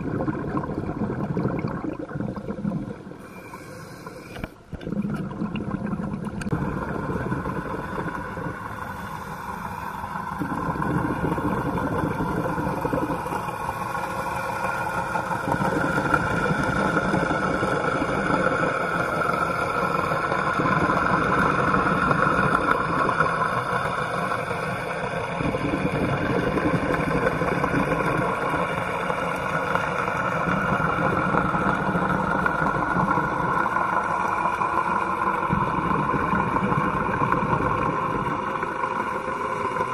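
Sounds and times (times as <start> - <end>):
motorboat engine drone underwater: 0.0 - 39.9.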